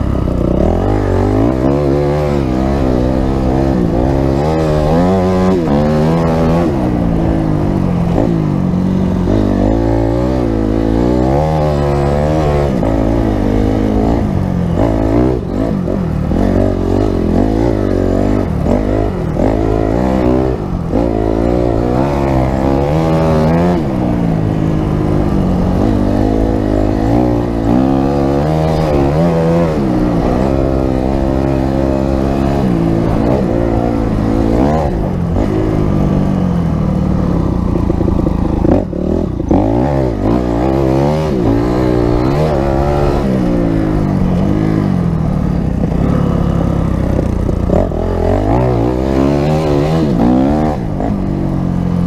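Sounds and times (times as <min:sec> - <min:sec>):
dirt bike engine revving: 0:00.0 - 0:52.0.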